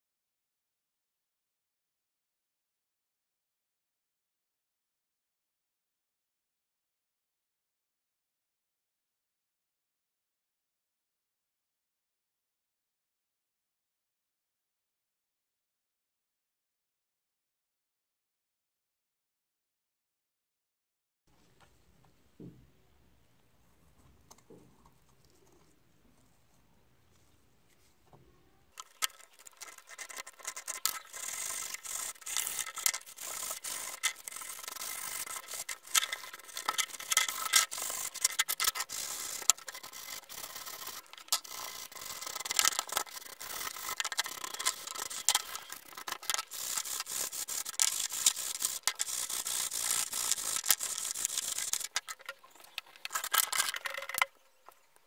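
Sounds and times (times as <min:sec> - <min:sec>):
scrubbing rust off metal: 0:28.8 - 0:54.2.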